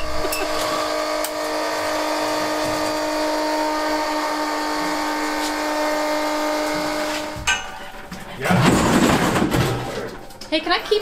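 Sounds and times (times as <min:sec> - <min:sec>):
electric motor whine: 0:00.0 - 0:07.5.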